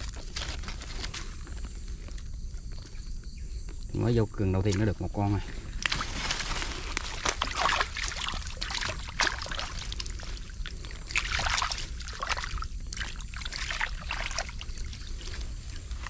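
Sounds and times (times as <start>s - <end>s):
muddy water splashing: 5.7s - 16.0s.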